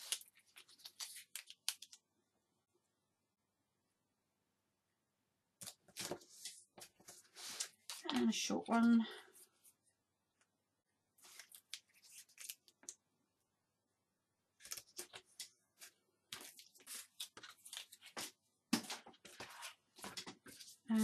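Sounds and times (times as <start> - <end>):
paper tape rustling and scraping: 0.0 - 2.0, 5.6 - 8.2, 11.2 - 13.0, 14.6 - 20.9.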